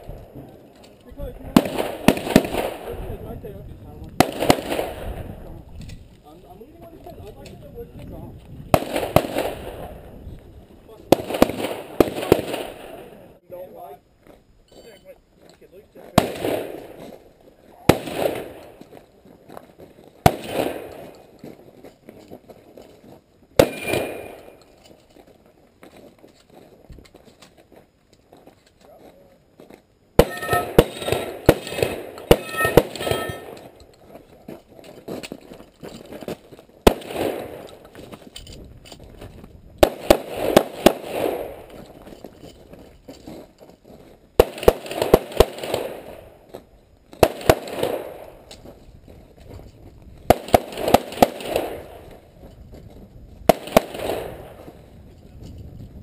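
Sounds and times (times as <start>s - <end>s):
gunshots with echo: 23.6s - 24.5s, 30.2s - 33.7s.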